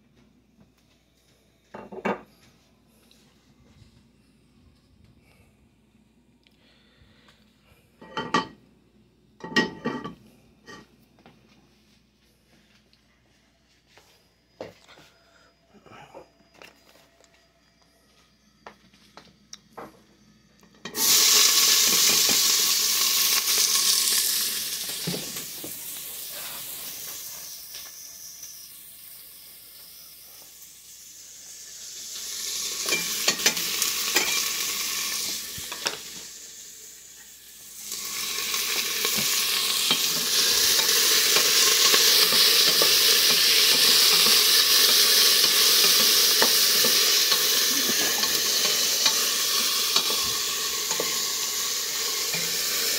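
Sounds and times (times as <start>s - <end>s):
onion sizzling in hot oil: 20.8s - 52.9s.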